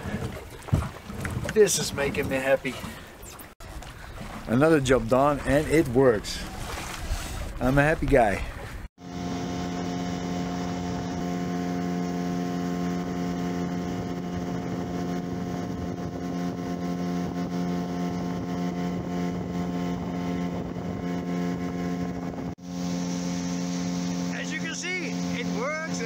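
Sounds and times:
outboard motor drone: 0.0 - 26.0
rushing boat wake: 0.0 - 26.0.

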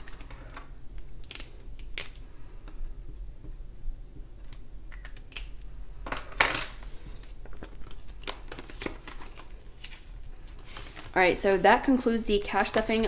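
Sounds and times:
paper sliding rustle: 8.5 - 11.2.

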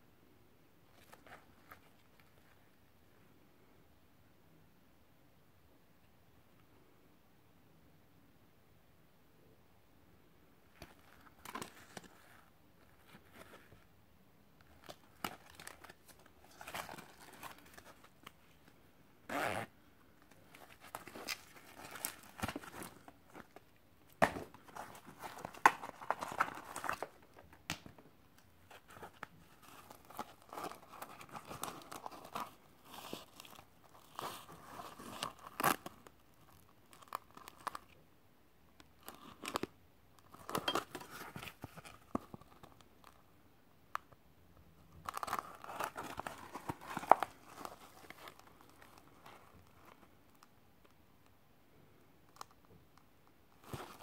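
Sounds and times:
fabric pouch rustling: 14.6 - 23.6, 24.2 - 27.2, 40.2 - 42.5, 45.0 - 50.0.

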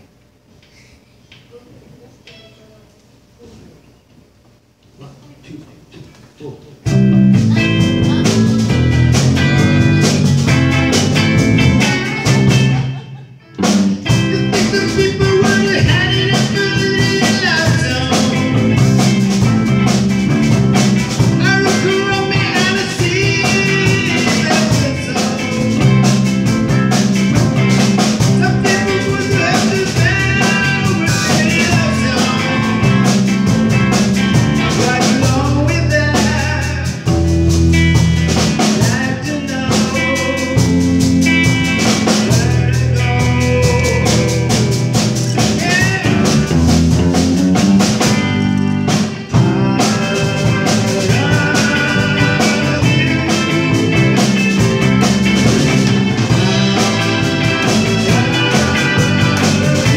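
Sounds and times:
live rock band playing: 6.8 - 59.9
person singing: 14.0 - 20.0, 21.2 - 26.5, 28.2 - 33.2, 33.9 - 37.2, 38.4 - 46.7, 48.9 - 59.9.

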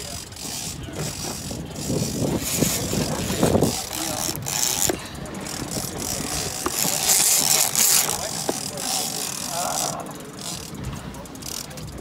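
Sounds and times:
boat noise: 0.0 - 12.0
fishing reel clicking: 0.0 - 12.0
muffled voices: 0.0 - 12.0.

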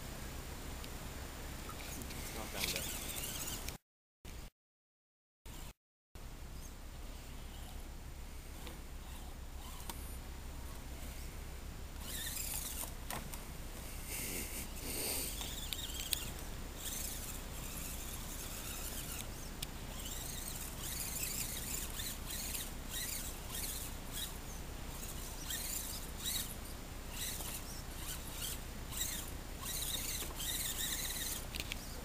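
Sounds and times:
toy truck motor whining: 1.8 - 3.8, 8.5 - 10.2, 12.0 - 13.0, 14.1 - 32.0.

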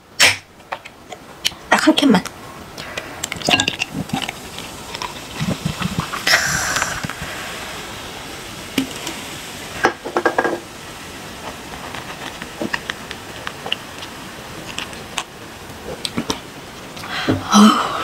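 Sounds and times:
person gulping and swallowing: 2.8 - 7.4.

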